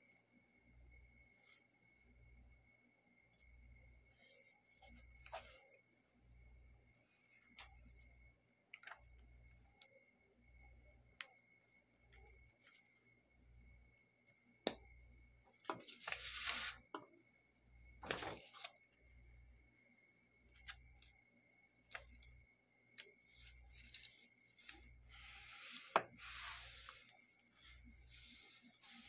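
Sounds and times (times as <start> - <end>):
paper rustling: 15.7 - 16.8, 18.0 - 18.9, 23.3 - 29.0
hand rubbing paper: 23.4 - 29.0.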